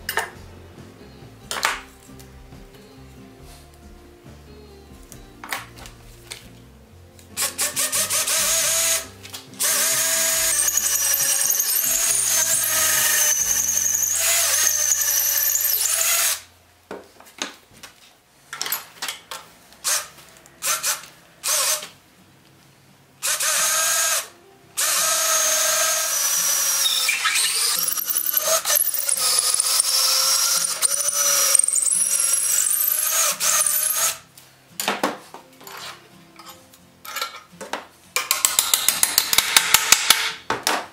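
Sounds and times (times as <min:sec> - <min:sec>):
cordless drill boring: 0:07.4 - 0:16.5, 0:19.8 - 0:21.9, 0:23.2 - 0:34.2.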